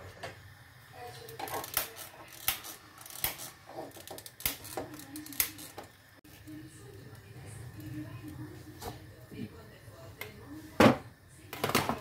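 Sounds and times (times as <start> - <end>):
gas hob knob turning: 1.2 - 6.0
gas lighter clicking: 1.6 - 3.5.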